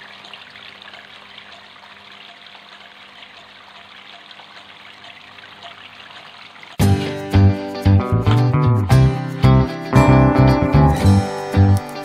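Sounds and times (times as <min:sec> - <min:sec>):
fountain water trickling and splashing: 0:00.0 - 0:07.2.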